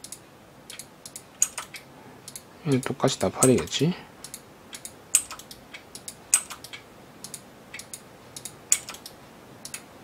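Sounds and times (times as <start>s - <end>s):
computer keyboard clicking: 0.0s - 2.4s, 3.4s - 9.8s
mouse clicks: 3.4s - 9.9s.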